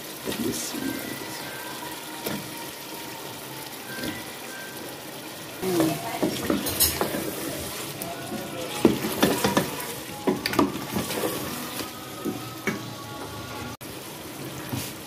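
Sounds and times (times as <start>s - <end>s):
food sizzling in oil: 0.0s - 15.0s
wooden spoon scraping pot: 5.8s - 11.9s.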